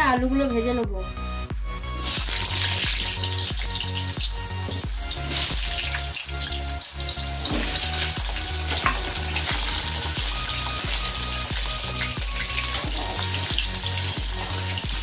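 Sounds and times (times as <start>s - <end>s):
potatoes sizzling in hot oil: 2.0s - 15.0s.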